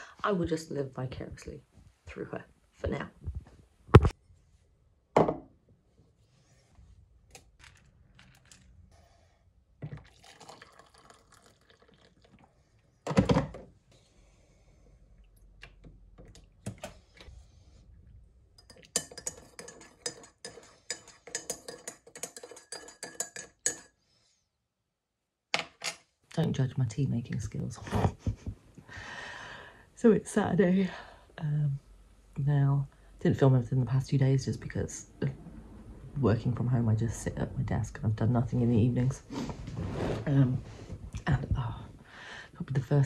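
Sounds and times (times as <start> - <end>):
crockery knocking on hard surface: 5.2 - 5.5
liquid pouring: 9.8 - 12.8
spoon clinking in mug: 18.6 - 23.9.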